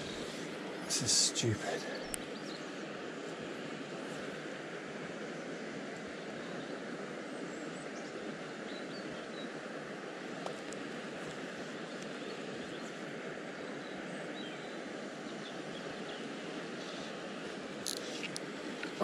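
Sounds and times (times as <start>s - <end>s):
birds chirping: 0.0s - 2.8s.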